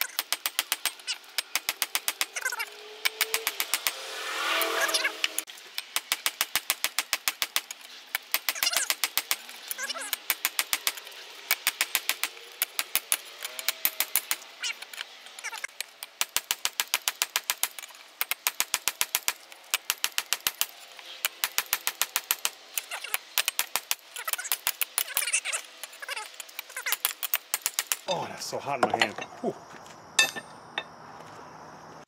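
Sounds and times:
hammer striking metal on anvil: 0:30.2 - 0:30.9.

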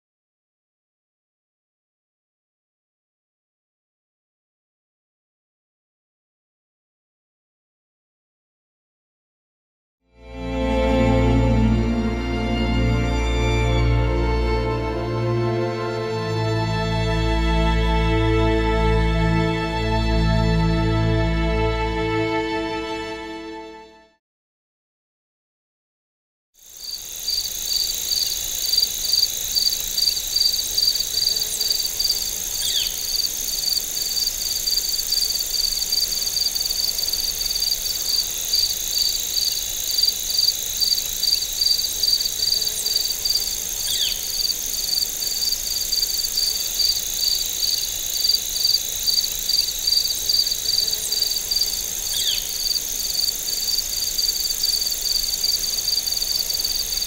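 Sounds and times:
crickets pulsing chirp: 0:26.6 - 0:57.0
high insect trill: 0:26.6 - 0:57.0.

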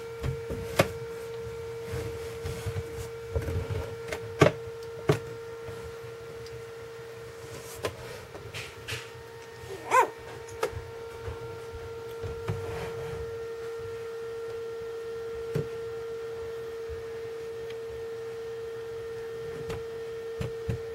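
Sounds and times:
steady hum: 0:00.0 - 0:20.9
puppy squeaking: 0:09.7 - 0:10.1.

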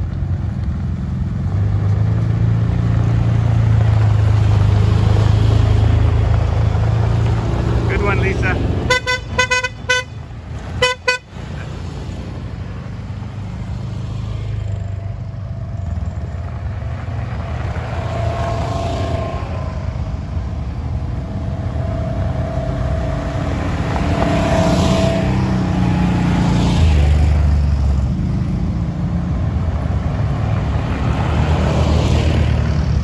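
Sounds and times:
vehicle engines running low: 0:00.0 - 0:33.0
short horn beeps: 0:08.9 - 0:10.2, 0:10.8 - 0:11.3.

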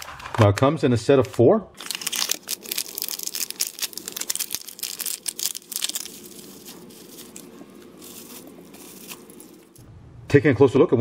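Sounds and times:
foil and plastic crinkling: 0:01.8 - 0:09.9.

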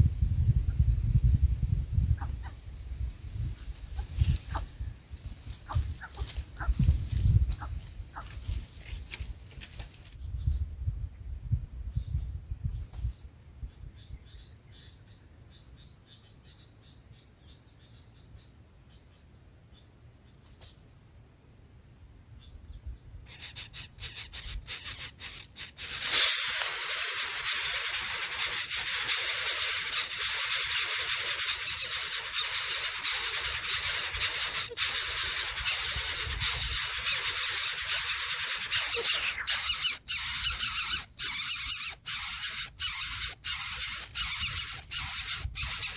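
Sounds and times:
nestling begging with rasping hiss: 0:23.3 - 0:45.9.

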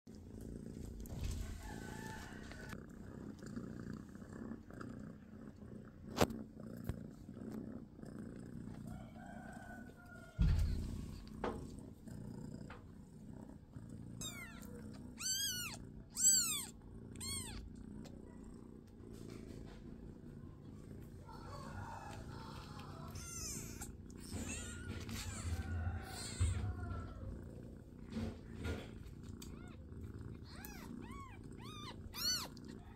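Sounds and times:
cat purring: 0:00.1 - 0:32.9
thump: 0:10.4 - 0:11.8
kitten mewing: 0:14.2 - 0:17.7, 0:22.4 - 0:27.3, 0:30.4 - 0:32.9.

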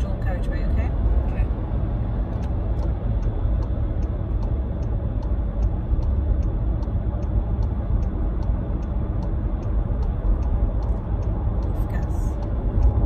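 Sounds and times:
road and engine rumble: 0:00.0 - 0:13.0
turn signal ticking: 0:00.0 - 0:13.0.

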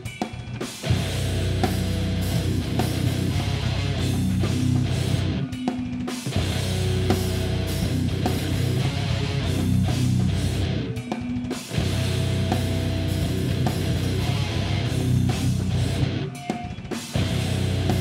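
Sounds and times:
heavy metal band playing live: 0:00.0 - 0:18.0.

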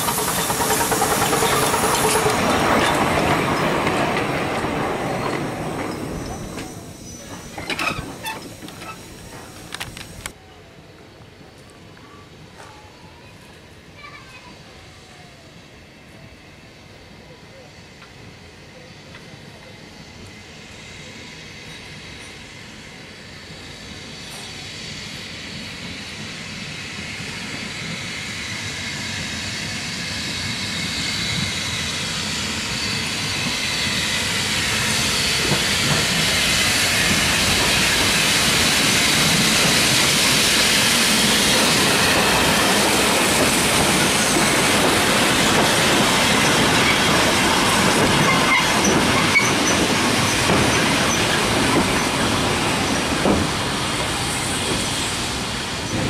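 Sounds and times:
wheels on rails: 0:00.0 - 0:10.4
steam locomotive passing: 0:00.0 - 0:56.0.

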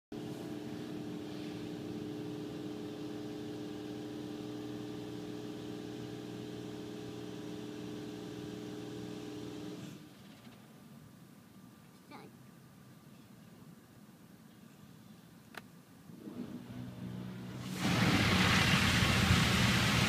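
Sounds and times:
machine humming with broad hiss: 0:00.2 - 0:10.0.

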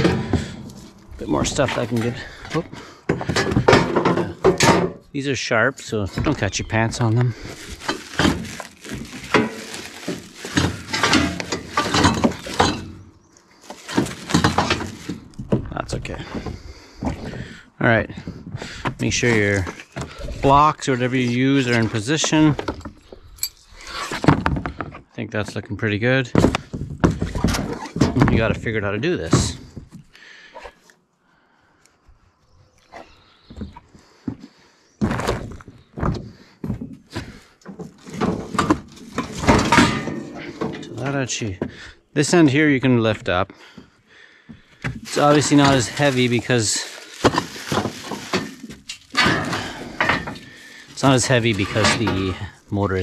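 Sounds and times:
steel parts knocking and clanking: 0:00.0 - 0:05.1, 0:10.4 - 0:13.1, 0:38.2 - 0:41.0, 0:48.3 - 0:52.6.

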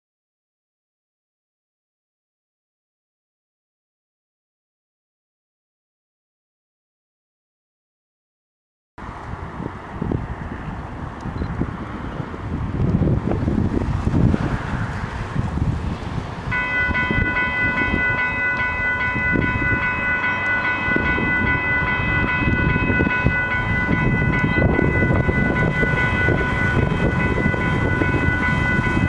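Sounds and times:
wind rumble on microphone: 0:09.0 - 0:29.0
level-crossing warning bell: 0:16.5 - 0:29.0.

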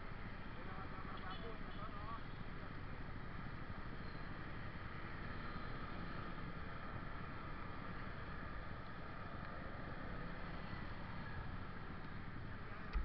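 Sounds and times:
motorcycle engine at low revs: 0:10.1 - 0:13.0.

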